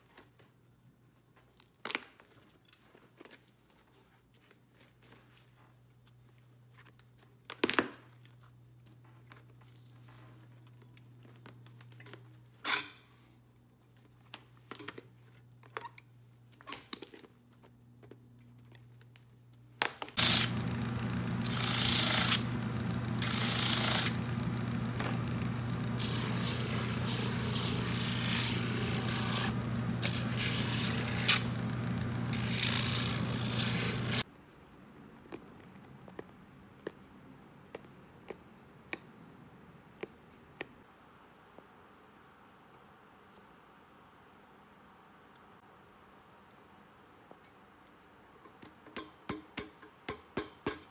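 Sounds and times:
sanding machine running: 20.2s - 34.2s
hissing of sanding: 21.4s - 22.5s, 23.2s - 24.2s, 26.0s - 31.7s, 32.3s - 34.2s.

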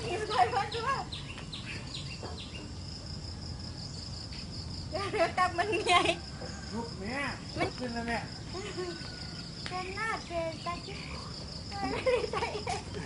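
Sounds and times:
indistinct voices talking: 0.0s - 1.3s, 4.9s - 13.0s
high-pitched insect drone: 0.0s - 13.0s.

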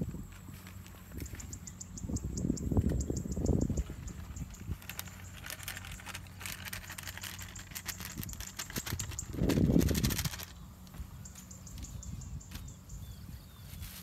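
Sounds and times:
wind buffeting microphone: 0.0s - 14.0s
dry clicking and rustling: 2.7s - 12.7s.

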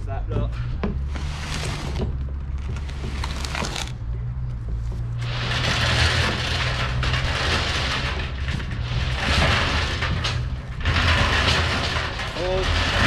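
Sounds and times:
steady low hum: 0.0s - 13.0s
cardboard scraping and rustling: 1.0s - 4.0s.

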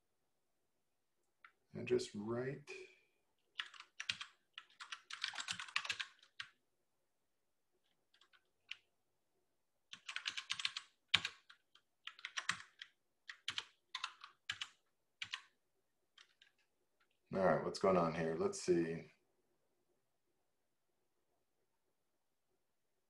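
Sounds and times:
computer keyboard typing: 3.5s - 6.6s, 8.1s - 8.8s, 9.9s - 17.1s.

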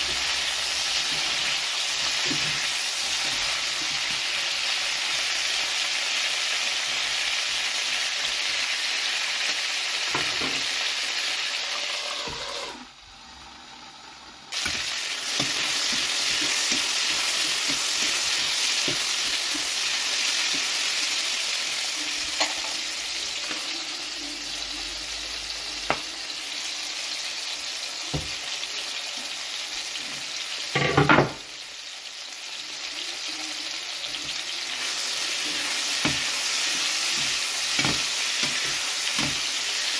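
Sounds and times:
peppers sizzling in oil: 0.0s - 39.9s
utensils knocking on pan: 37.2s - 39.5s.

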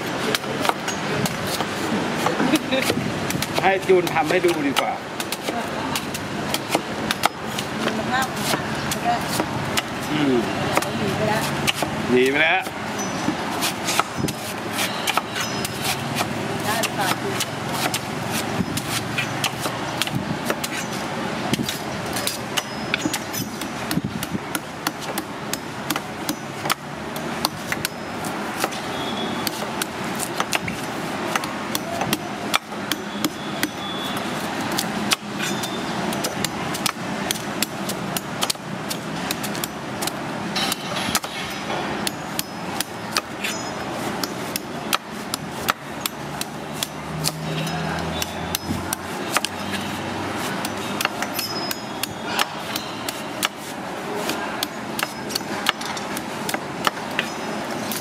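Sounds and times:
knife chopping on wooden board: 0.3s - 28.0s, 28.6s - 57.3s.

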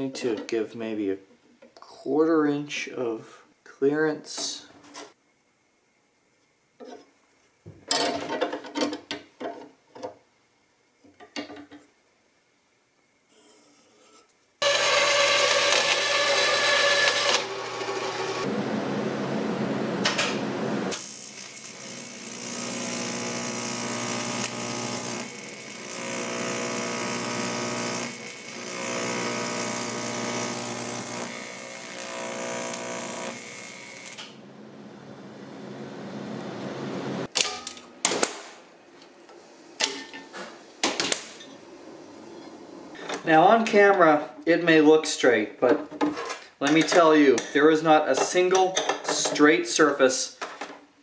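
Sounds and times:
buzzing welding arc: 14.6s - 18.5s, 20.9s - 34.4s.

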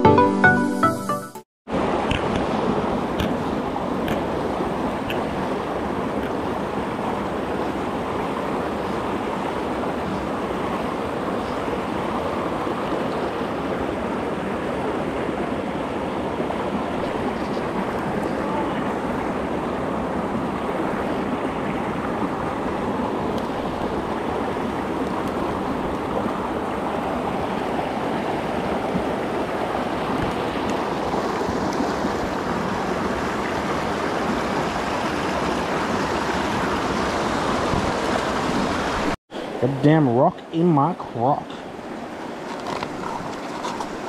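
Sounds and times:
stream rushing over boulders: 1.7s - 44.0s.

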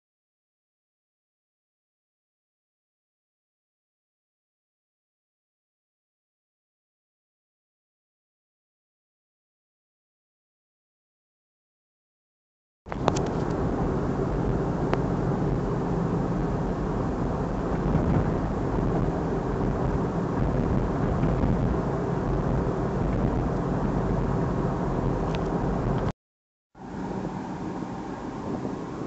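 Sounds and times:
car road noise rumble: 12.9s - 26.1s, 26.8s - 29.0s.

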